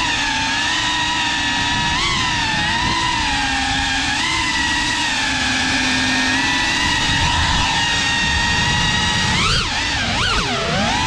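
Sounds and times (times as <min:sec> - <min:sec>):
quadcopter motors whining: 0:00.0 - 0:11.0
rushing low noise: 0:06.6 - 0:09.5.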